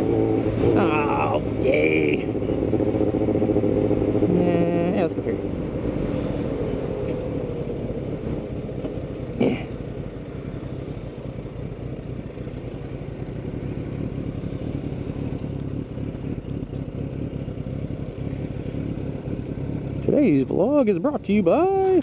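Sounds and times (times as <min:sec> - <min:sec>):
motorcycle engine running: 0:00.0 - 0:22.0.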